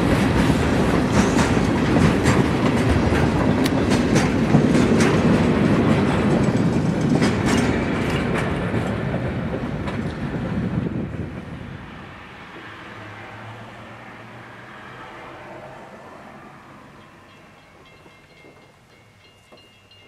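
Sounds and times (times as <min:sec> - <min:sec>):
freight train wheels clicking: 0:00.0 - 0:11.1.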